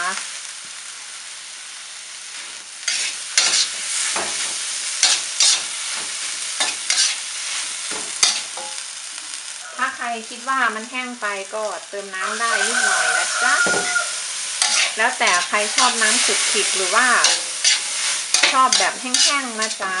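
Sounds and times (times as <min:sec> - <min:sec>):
food sizzling in a wok: 0:00.0 - 0:20.0
metal spatula scraping a wok: 0:02.3 - 0:09.0, 0:12.3 - 0:20.0.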